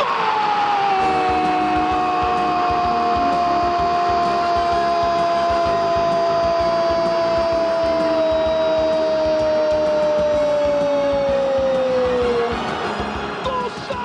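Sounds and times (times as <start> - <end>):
commentator long held shout: 13.3 - 14.0.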